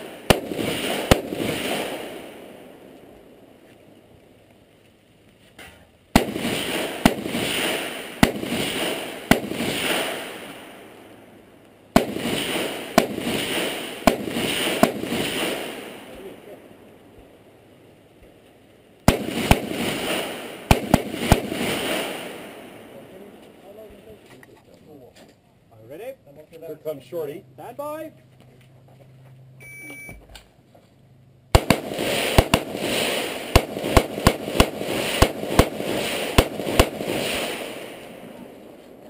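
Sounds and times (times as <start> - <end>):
rifle gunshots with echo: 0.0 - 3.0, 6.2 - 11.1, 11.9 - 16.8, 19.1 - 23.3, 31.5 - 38.6.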